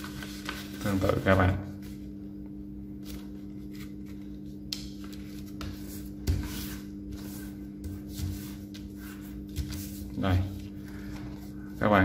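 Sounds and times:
paper being folded: 0.0s - 2.1s
steady low hum: 0.0s - 12.0s.

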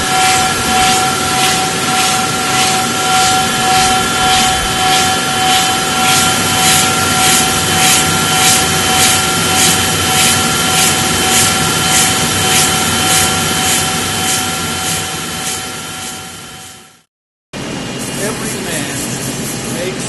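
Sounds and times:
grinding machine whine: 0.0s - 20.0s
coolant grinding hiss: 18.0s - 20.0s.

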